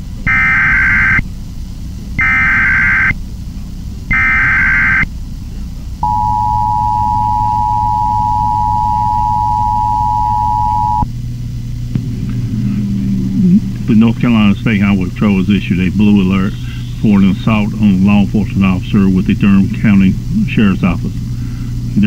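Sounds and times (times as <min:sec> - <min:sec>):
digital data tone bursts: 0:00.3 - 0:01.2, 0:02.2 - 0:03.2, 0:04.1 - 0:05.1, 0:06.0 - 0:11.0
two-tone attention signal: 0:06.0 - 0:11.0.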